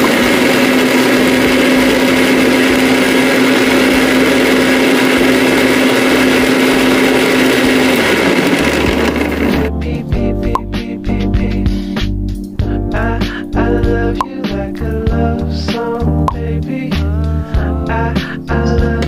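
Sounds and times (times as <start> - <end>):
mixer grinder motor hum: 0.0 - 9.8
churning noise: 0.0 - 9.9.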